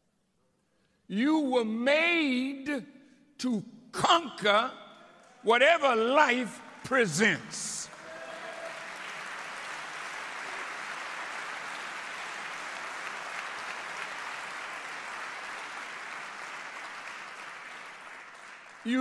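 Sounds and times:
audience applauding: 7.8 - 19.0.

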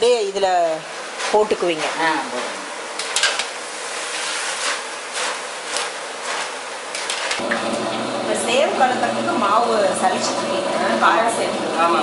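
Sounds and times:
snacks sizzling in hot oil: 0.0 - 7.6
stirring scrapes and knocks: 0.8 - 7.4.

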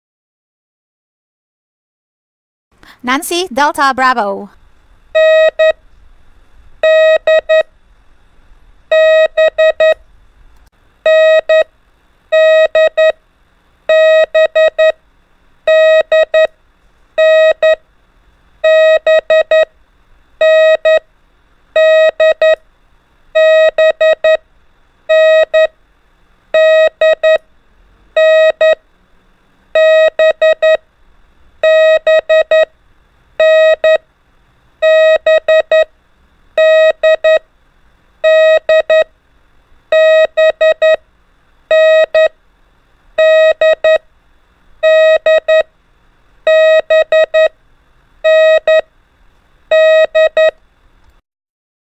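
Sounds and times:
morse code beeping: 5.2 - 5.8, 6.8 - 7.7, 8.9 - 10.0, 12.4 - 13.2, 13.9 - 15.0, 20.4 - 21.0, 21.8 - 22.6, 26.6 - 27.4, 28.2 - 28.8, 29.8 - 30.8, 31.6 - 32.7, 33.4 - 34.0, 34.8 - 35.9, 36.6 - 37.4, 38.2 - 39.1, 39.9 - 41.0, 41.7 - 42.3, 43.2 - 44.0, 44.8 - 45.7, 46.5 - 47.5, 48.2 - 48.8, 49.7 - 50.5.

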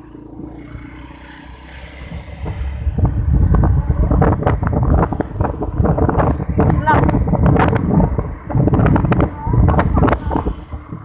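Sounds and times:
motorcycle engine running: 0.0 - 11.0
wind buffeting microphone: 2.0 - 11.0.

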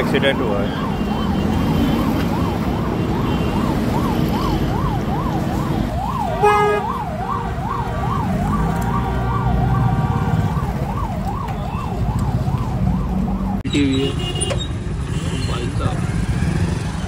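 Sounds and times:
traffic rumble: 0.0 - 17.0
electronic siren wailing: 0.6 - 13.6
loud horn blast: 6.4 - 6.9.

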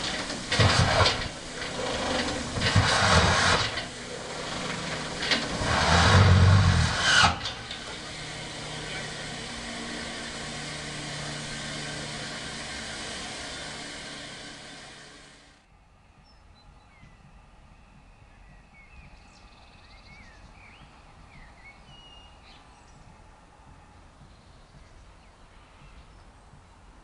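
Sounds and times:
steam locomotive venting steam: 0.0 - 15.6
deep rumble: 0.0 - 26.1
low hum: 0.0 - 26.9.

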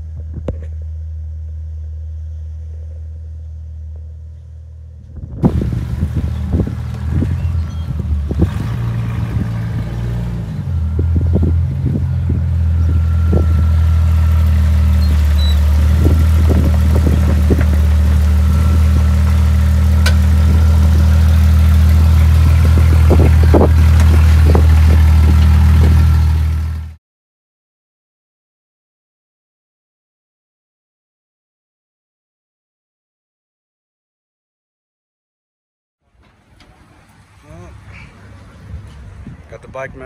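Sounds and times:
car engine droning: 0.0 - 27.0, 36.0 - 40.0.

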